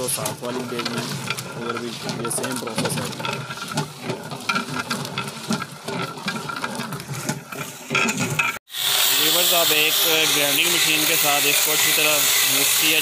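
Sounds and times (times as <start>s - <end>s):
liquid splashing: 0.0s - 8.3s
metal clinks and scrapes: 0.0s - 8.6s.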